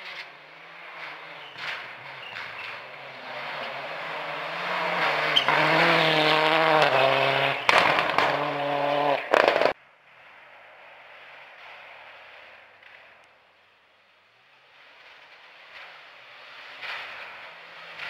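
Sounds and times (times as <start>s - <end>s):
rally car engine at full throttle: 0.0s - 18.0s
sharp engine bangs: 1.8s - 9.8s.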